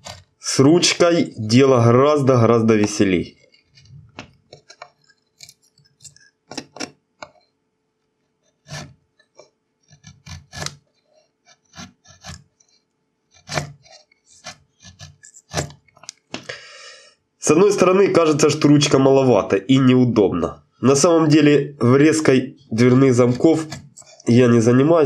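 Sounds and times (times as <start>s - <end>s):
chisel paring wood: 0.0s - 0.4s, 8.6s - 10.9s, 11.5s - 12.6s, 13.3s - 16.2s, 23.2s - 24.3s.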